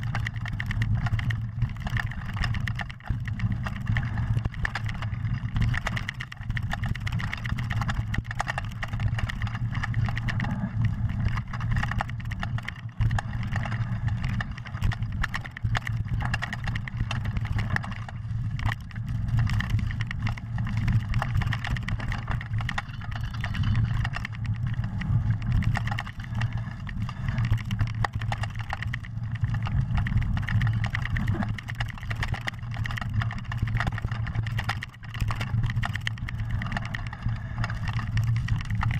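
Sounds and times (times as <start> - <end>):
bike rattles and knocks: 0.0 - 38.9.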